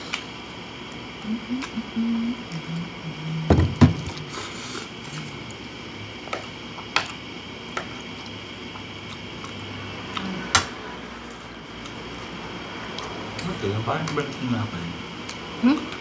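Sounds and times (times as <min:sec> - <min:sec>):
slurping and chewing spaghetti: 0:07.8 - 0:10.4.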